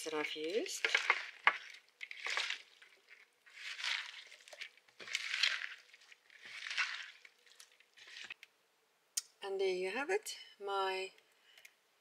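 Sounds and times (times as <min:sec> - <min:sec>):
hand squeezing shredded vegetables: 0:00.2 - 0:08.4.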